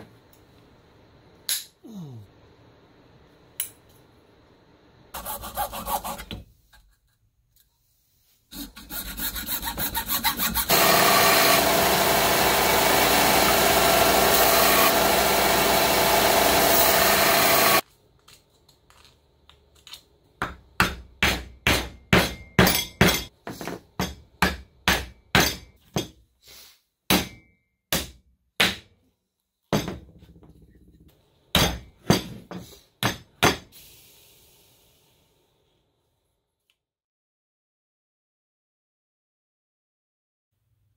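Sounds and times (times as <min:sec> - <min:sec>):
hacksaw cutting plastic pipe: 0:08.6 - 0:17.8.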